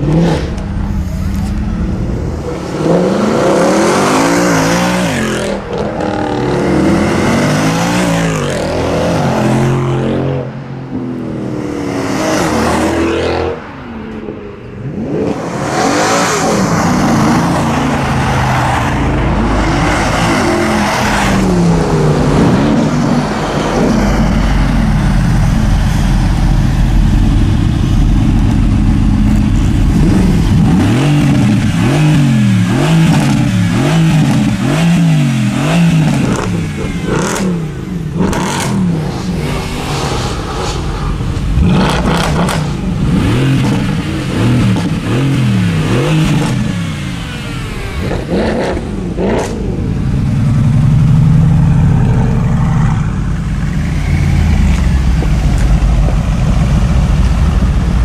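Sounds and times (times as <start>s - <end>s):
car engine revving: 0.0s - 58.0s
exhaust cracks: 20.8s - 34.7s, 35.4s - 50.8s, 51.4s - 58.0s.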